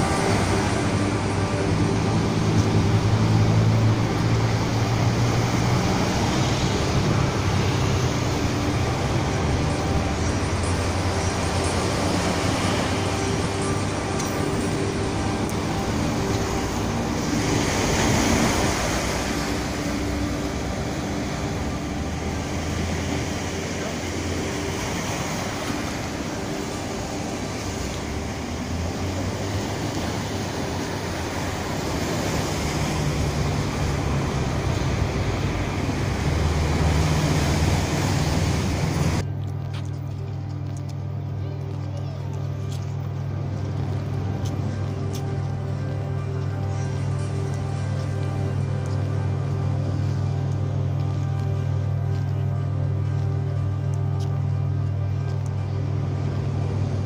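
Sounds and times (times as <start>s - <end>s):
waves washing onto rocks: 0.0s - 39.2s
road traffic rumble: 0.0s - 57.0s
wind: 0.0s - 57.0s.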